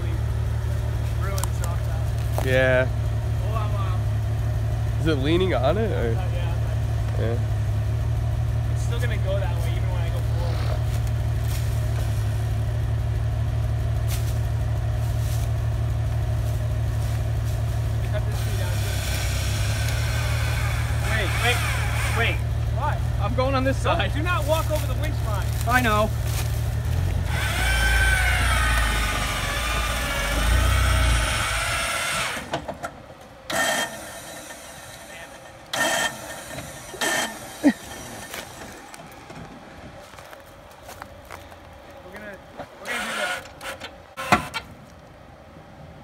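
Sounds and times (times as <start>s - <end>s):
car engine idling: 0.0s - 46.0s
electric winch whining: 18.3s - 23.8s, 26.9s - 39.9s, 42.8s - 44.7s.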